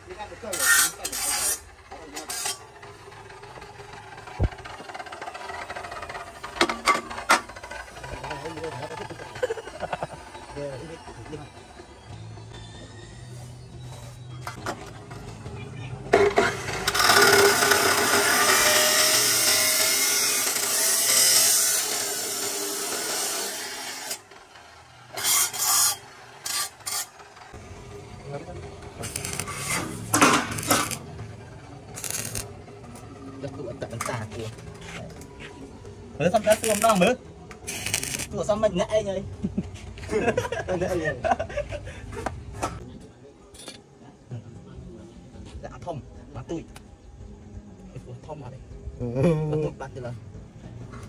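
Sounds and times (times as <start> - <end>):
metal tubing scraping: 0.4 - 2.9, 25.1 - 27.2, 29.0 - 31.0, 32.0 - 32.5
chop saw grinding through steel: 0.4 - 3.2, 16.2 - 24.3, 25.1 - 27.2, 29.0 - 31.1.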